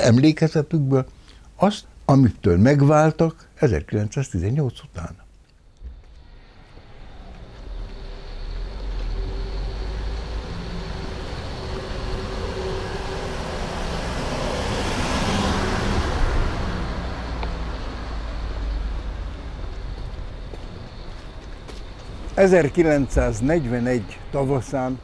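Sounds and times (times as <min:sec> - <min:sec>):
vehicle passing: 0:05.8 - 0:25.0.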